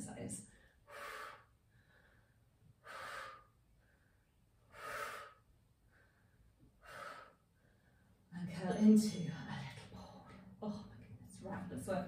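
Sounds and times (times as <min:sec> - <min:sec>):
woman breathing hard: 0:00.5 - 0:08.2.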